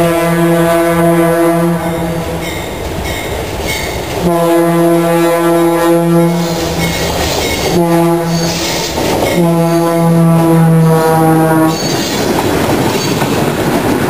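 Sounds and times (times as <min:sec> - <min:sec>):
locomotive air horn blasts: 0:00.0 - 0:02.4, 0:04.2 - 0:06.9, 0:07.6 - 0:08.7, 0:09.3 - 0:11.8
train rumble: 0:00.0 - 0:14.0.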